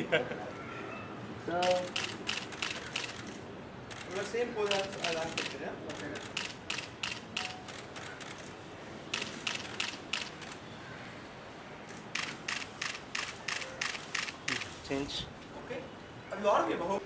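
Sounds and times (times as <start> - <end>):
camera shutters clicking: 1.6 - 10.6, 11.9 - 14.7.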